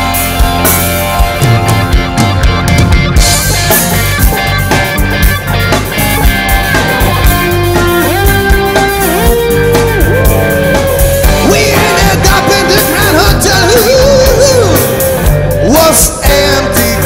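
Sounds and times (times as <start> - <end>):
hard rock band playing: 0.0 - 17.0
man singing: 11.2 - 17.0.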